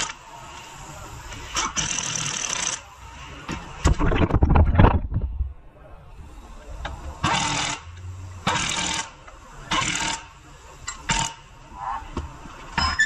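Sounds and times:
ratchet clicking: 1.5s - 2.8s, 7.2s - 11.4s.

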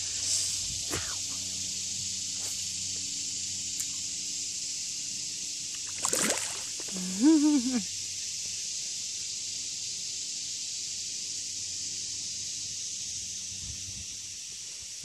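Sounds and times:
steady hiss: 0.0s - 15.0s
alligator splashing water: 5.8s - 7.0s.

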